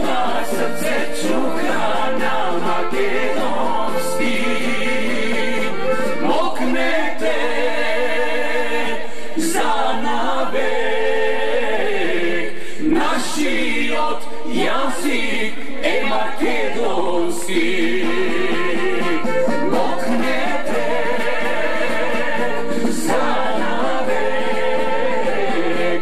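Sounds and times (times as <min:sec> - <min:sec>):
man and woman singing: 0:00.0 - 0:26.0
other voices singing along: 0:00.0 - 0:26.0.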